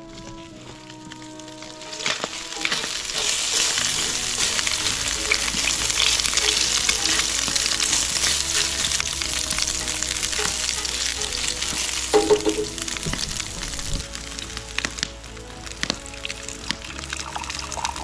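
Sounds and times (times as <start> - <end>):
eggs sizzling and popping in a pan: 0.7 - 18.0.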